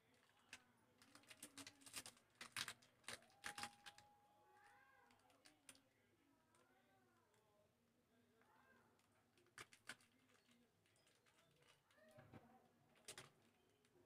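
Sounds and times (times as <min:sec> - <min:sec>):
plastic wrapper crinkling: 0:01.0 - 0:04.0.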